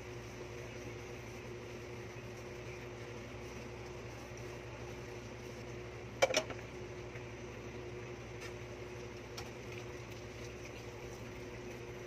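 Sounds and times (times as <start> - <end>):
steady background hum: 0.0 - 12.0
dishes clinking: 6.2 - 6.6.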